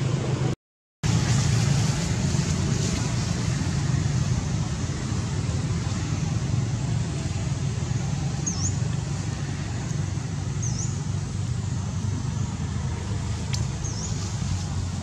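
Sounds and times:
low outdoor rumble: 0.0s - 15.0s
small bird chirping: 8.4s - 8.8s, 10.6s - 11.1s, 13.6s - 14.3s.

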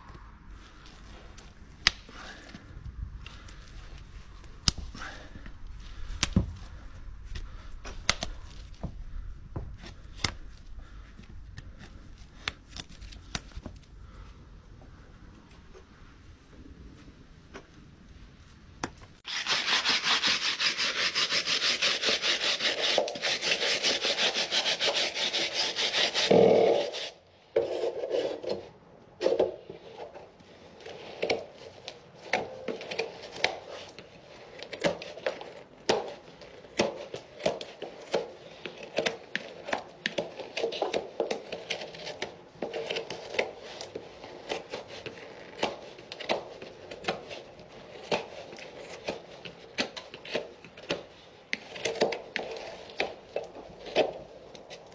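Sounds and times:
rasp filing hoof: 19.3s - 28.6s.

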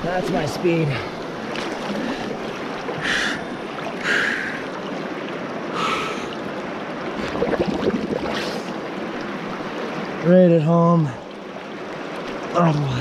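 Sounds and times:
river water rushing over rocks: 0.0s - 13.0s
person taking sharp breaths: 4.0s - 4.6s.

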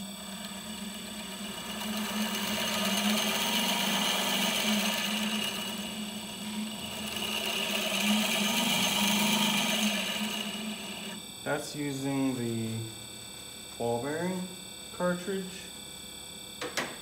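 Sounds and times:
ball bearing whirring on spinning lap: 0.0s - 11.6s.

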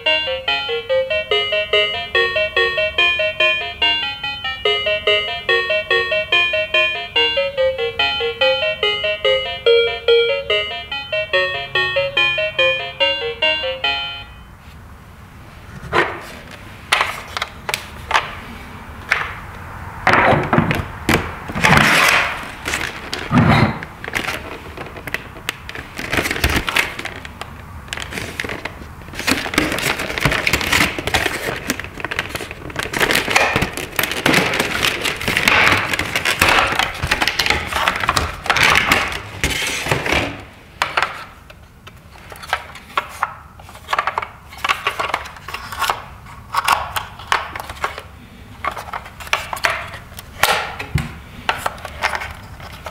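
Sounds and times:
plastic packaging crackling: 21.7s - 39.3s.

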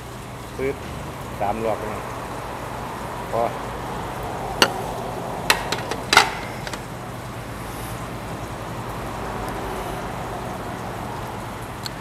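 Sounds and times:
road traffic rumble: 0.0s - 12.0s
utensils clinking on dishes: 4.6s - 4.8s, 5.5s - 6.9s.

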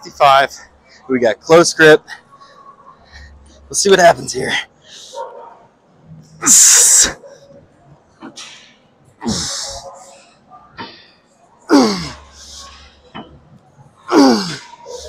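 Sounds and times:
man grunting: 6.4s - 7.2s, 9.2s - 9.8s, 11.7s - 12.9s, 14.0s - 15.0s.

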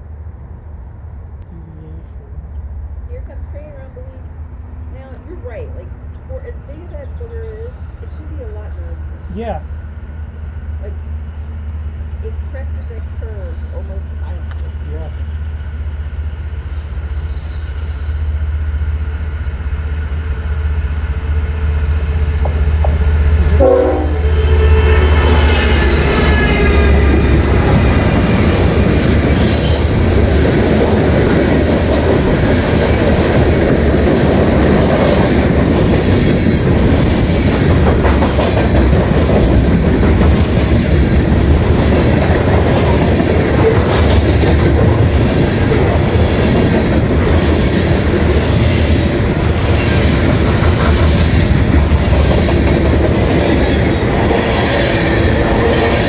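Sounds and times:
diesel locomotive engine rumble: 0.0s - 56.0s
train horn: 23.4s - 27.7s
freight cars rolling and clattering: 26.0s - 56.0s.

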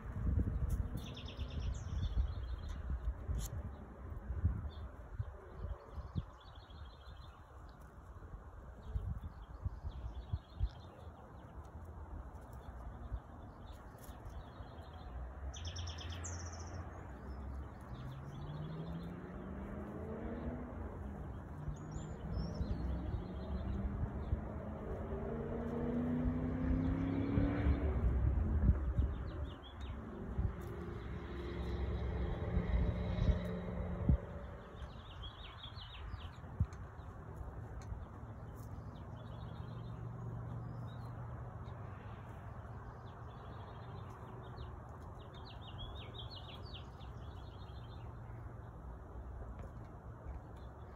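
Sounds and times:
small birds chirping: 0.0s - 50.9s
distant engine hum rising: 10.1s - 50.9s
steady low rumble: 16.4s - 50.9s.

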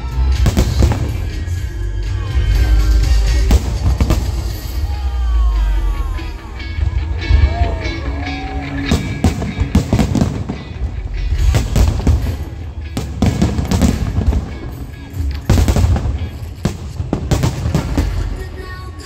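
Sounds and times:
music playing: 0.0s - 19.0s
firework shells bursting: 8.8s - 18.7s.

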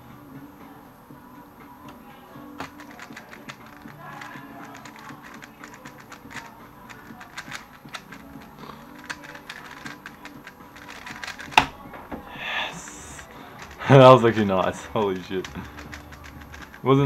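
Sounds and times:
plastic puzzle cube clicking: 2.6s - 11.8s, 13.1s - 16.9s.

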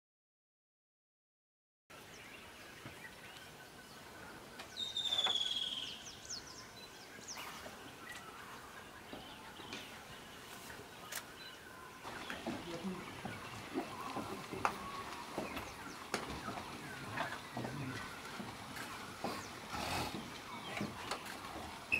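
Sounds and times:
birds calling: 1.9s - 21.9s
short bird chirps and whistles: 4.8s - 6.0s.

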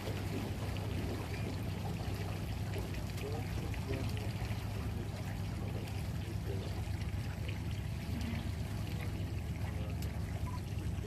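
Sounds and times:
steady low rumble: 0.0s - 11.0s
water trickling along a boat hull: 0.0s - 11.0s.

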